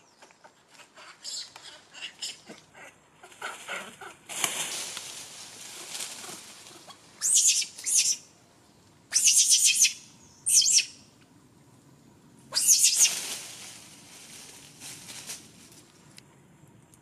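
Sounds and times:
infant monkey screaming: 5.8 - 8.3, 9.1 - 11.0, 12.5 - 13.2.

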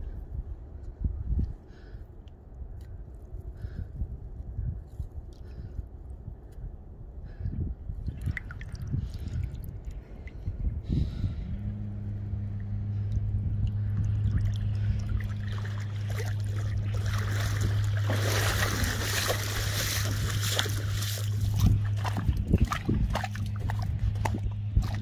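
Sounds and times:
steady low hum: 0.0 - 25.0
splashing rushing water: 14.2 - 25.0
footsteps on gravel: 17.0 - 25.0.

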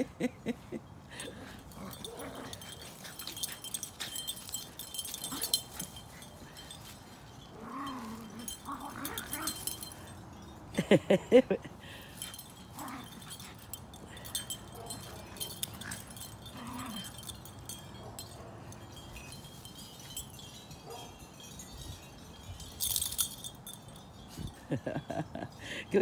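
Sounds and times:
faint high tinkling: 0.0 - 26.0.

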